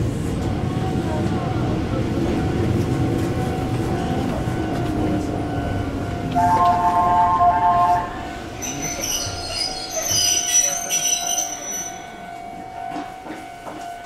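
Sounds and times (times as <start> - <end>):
train running rumble: 0.0 - 14.0
train wheels squealing: 8.5 - 12.2.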